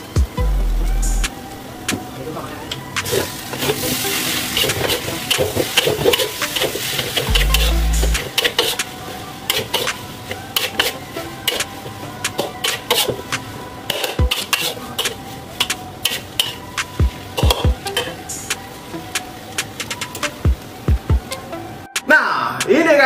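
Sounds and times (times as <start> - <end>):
metal spatula scraping a wok: 13.9 - 15.2.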